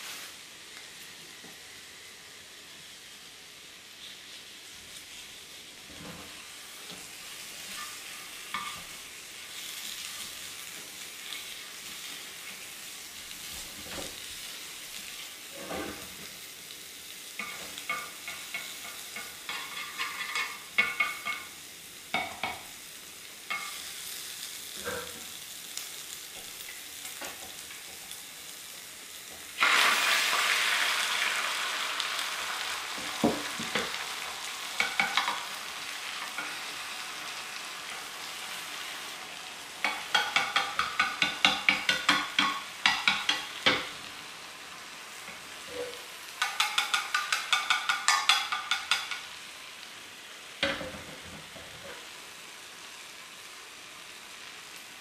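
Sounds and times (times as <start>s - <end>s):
egg sizzling in a pan: 0.0s - 55.0s.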